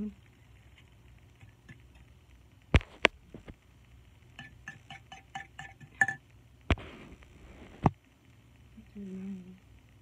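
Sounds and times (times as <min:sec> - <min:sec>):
utensil clinking against bowl: 0:04.4 - 0:06.2.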